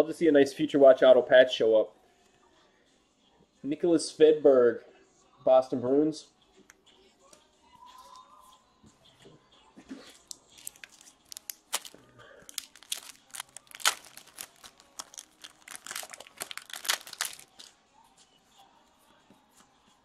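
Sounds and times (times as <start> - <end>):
foil wrappers torn and crinkled: 10.4 - 17.7.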